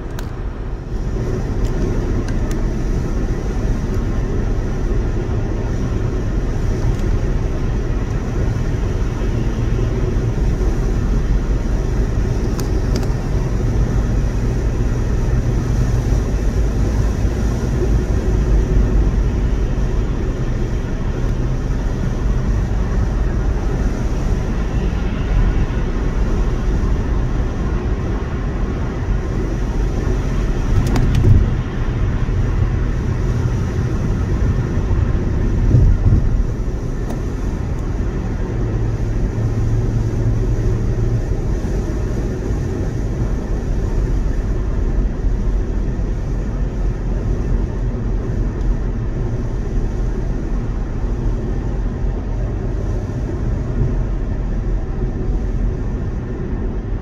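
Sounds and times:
car road noise rumble: 0.0s - 57.0s.

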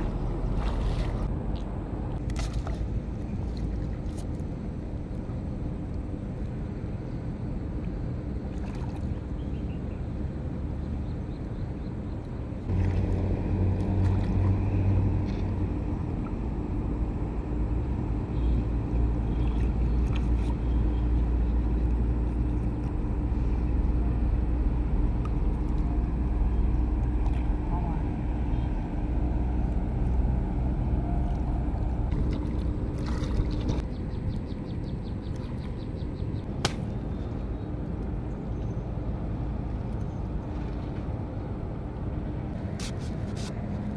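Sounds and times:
water sloshing and splashing: 0.0s - 5.4s, 7.8s - 9.6s, 12.6s - 16.8s, 18.9s - 23.6s, 25.1s - 33.9s, 38.5s - 43.6s
steady low hum: 0.0s - 43.9s.

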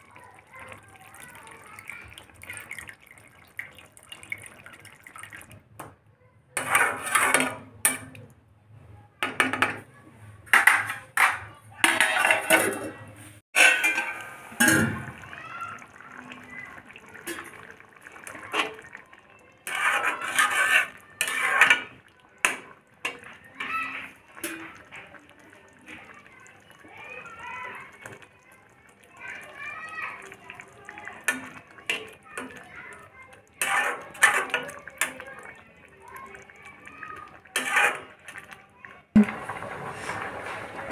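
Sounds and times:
spatula scraping a pan: 6.6s - 8.0s, 10.5s - 14.7s, 19.6s - 24.8s, 33.6s - 35.2s, 37.5s - 38.5s
steel cookware clattering: 6.6s - 8.2s, 10.5s - 13.0s, 13.6s - 15.3s, 19.6s - 25.1s, 33.6s - 35.6s, 37.5s - 38.4s.

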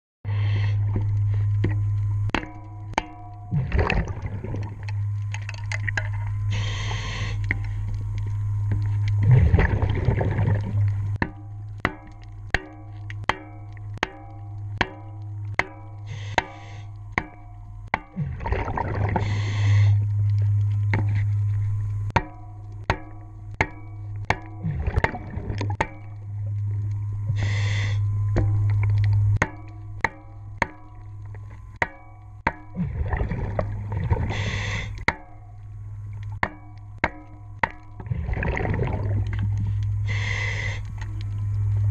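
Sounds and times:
steady low hum: 0.3s - 41.9s
underwater hammer blows on metal: 0.8s - 8.0s, 8.6s - 20.3s, 21.9s - 35.7s, 36.3s - 38.0s
regulator bubbles: 3.4s - 16.1s, 18.0s - 21.2s, 22.0s - 27.5s, 32.6s - 35.0s, 37.4s - 41.9s.

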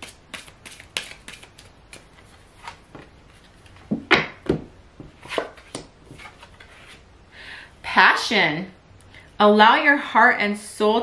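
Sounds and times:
cards being shuffled: 0.0s - 3.9s.

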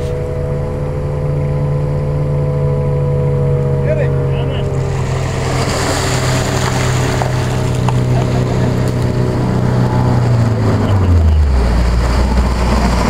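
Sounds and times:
truck engine running: 0.0s - 13.0s
water rushing and splashing: 4.7s - 10.8s.

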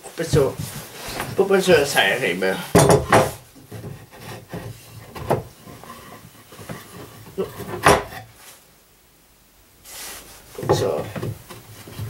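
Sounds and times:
scraping of wooden boards: 0.2s - 8.4s, 10.1s - 12.0s
knocks on wood: 2.7s - 3.4s.

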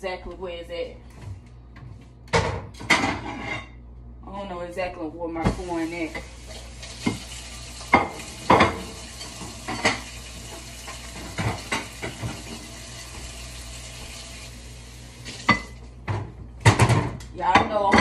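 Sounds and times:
kitchen items knocking in cabinet: 16.0s - 18.0s.

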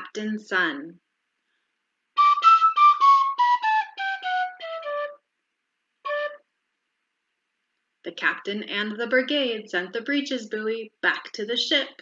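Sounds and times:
flute melody: 2.2s - 5.2s, 6.0s - 6.4s.

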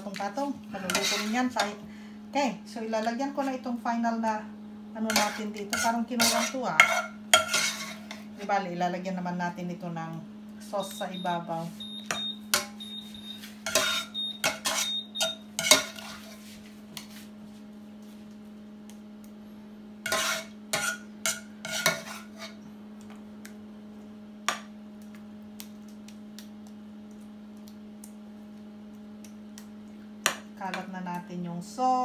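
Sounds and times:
steady low hum: 0.0s - 32.0s
wooden spoon scraping a frying pan: 0.8s - 1.8s, 5.1s - 8.4s, 13.6s - 15.0s, 15.6s - 17.3s, 20.0s - 22.6s.

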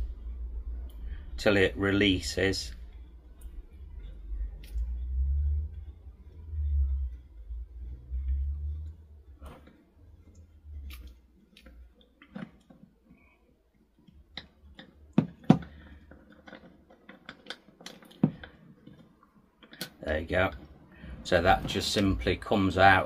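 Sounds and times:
low rumble: 0.0s - 11.4s
small clicks and knocks: 8.1s - 20.8s.

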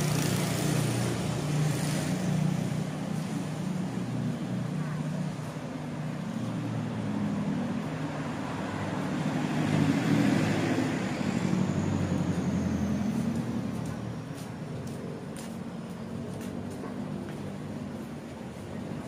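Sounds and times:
traffic hum: 0.0s - 19.0s
vehicle passing: 6.4s - 18.8s.

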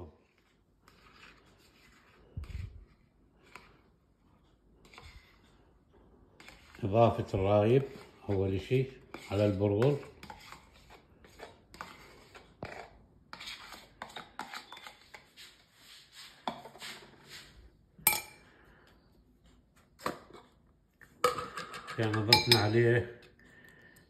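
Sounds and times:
spoon scraping and tapping carton: 6.4s - 18.3s, 19.9s - 23.3s.

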